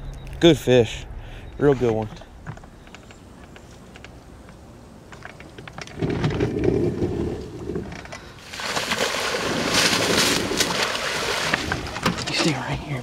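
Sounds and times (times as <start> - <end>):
splashing in shallow water: 8.4 - 12.5.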